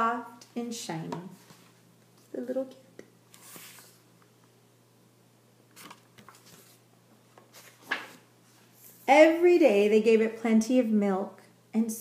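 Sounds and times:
faint steady hum: 0.0s - 12.0s
book pages rustling: 3.3s - 4.0s, 5.7s - 6.8s, 7.4s - 9.0s.

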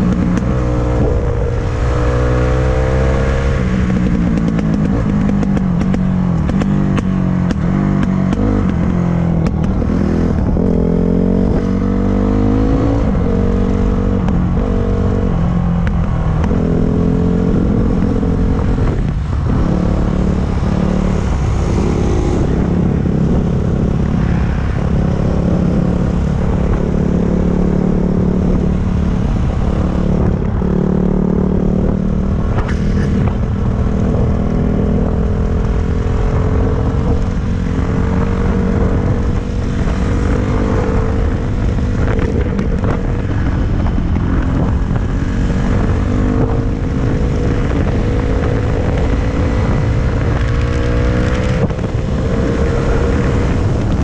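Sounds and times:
wind and road noise: 0.0s - 54.0s.

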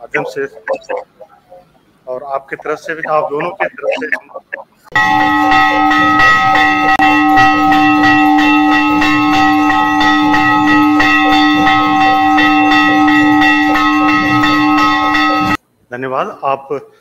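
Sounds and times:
bells ringing: 2.5s - 15.6s.

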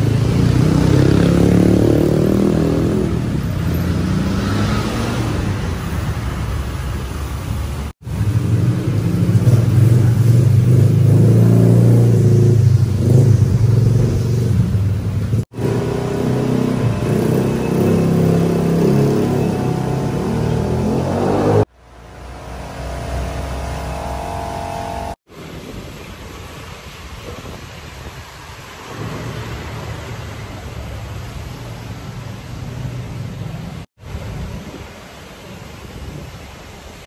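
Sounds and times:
motor humming: 22.0s - 25.2s.

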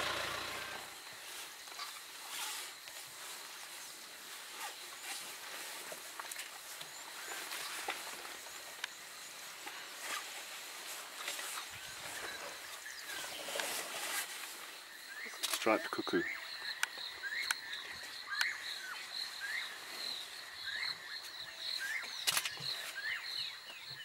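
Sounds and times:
rustles and snaps in grass: 1.2s - 14.7s, 21.8s - 23.1s.

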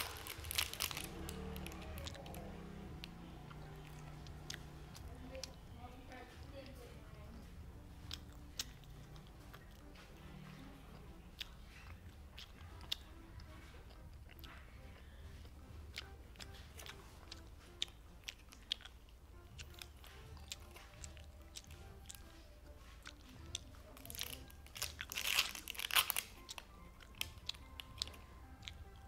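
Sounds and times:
plastic blister pack crinkling: 0.0s - 2.5s, 23.9s - 28.2s
wet chewing clicks: 0.0s - 29.0s.

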